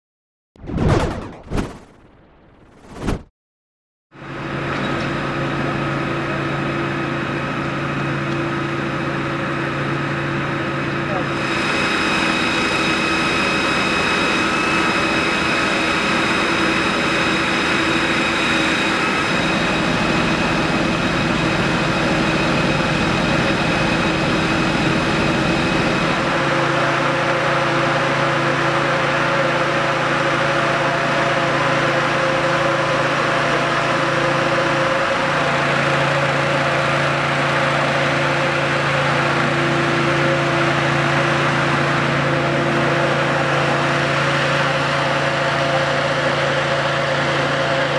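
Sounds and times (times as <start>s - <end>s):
high steady whine: 9.1s - 46.7s.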